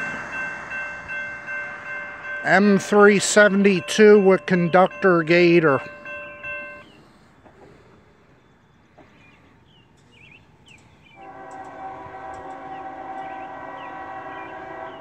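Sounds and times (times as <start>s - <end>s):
locomotive air horn chord: 11.2s - 15.0s.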